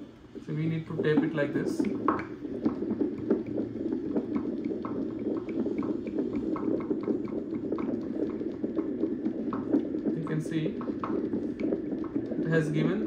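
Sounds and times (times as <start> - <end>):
fetal monitor speaker rushing noise: 0.0 - 13.0.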